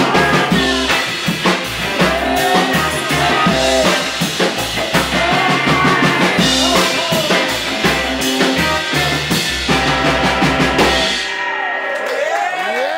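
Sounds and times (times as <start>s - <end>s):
upright bass slapping: 0.0s - 11.1s
drum kit: 0.0s - 11.8s
electric guitar: 0.0s - 12.9s
woman singing: 2.0s - 4.0s.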